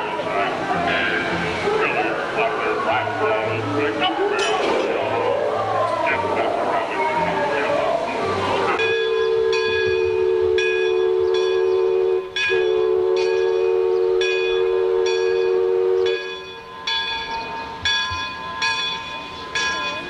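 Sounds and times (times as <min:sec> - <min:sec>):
steam whistle blasts: 0:08.8 - 0:16.9
bell clanging: 0:16.1 - 0:20.0.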